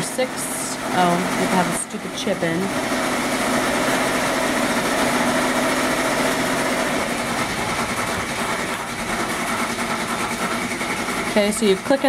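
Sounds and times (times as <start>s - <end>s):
sewing machines whirring: 0.0s - 12.0s.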